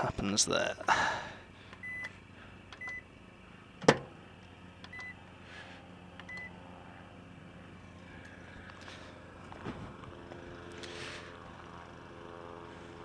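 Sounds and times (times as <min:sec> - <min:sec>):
microwave oven humming: 0:00.0 - 0:13.0
microwave keypad beeps: 0:01.8 - 0:02.1, 0:02.8 - 0:03.0, 0:04.9 - 0:05.2, 0:06.3 - 0:06.5.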